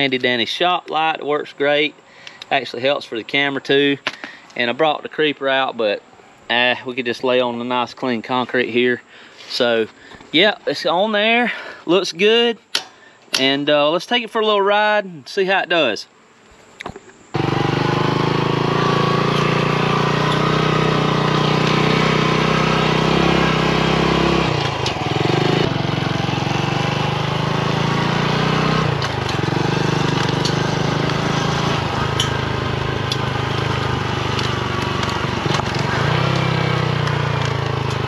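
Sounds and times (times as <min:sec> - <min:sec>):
motorcycle engine running: 0:17.4 - 0:38.0.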